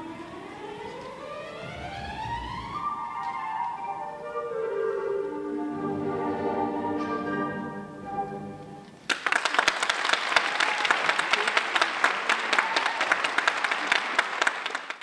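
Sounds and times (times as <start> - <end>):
orchestral music: 0.0 - 9.1
audience applause: 9.0 - 15.0.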